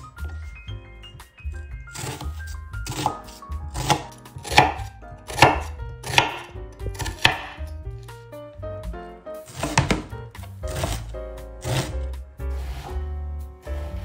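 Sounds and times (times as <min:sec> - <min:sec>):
knife slicing onion on board: 0:02.0 - 0:07.8, 0:09.5 - 0:10.1, 0:10.7 - 0:13.0.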